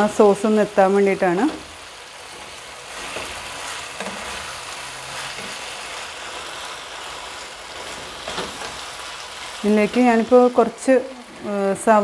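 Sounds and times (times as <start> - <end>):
chicken sizzling in a pan: 0.0 - 12.0
spatula scraping a pan: 2.2 - 9.0.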